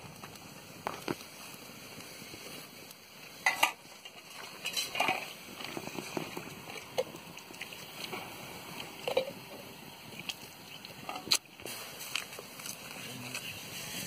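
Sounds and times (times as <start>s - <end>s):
food sizzling in wok: 0.0s - 14.0s
wood fire crackling: 0.0s - 14.0s.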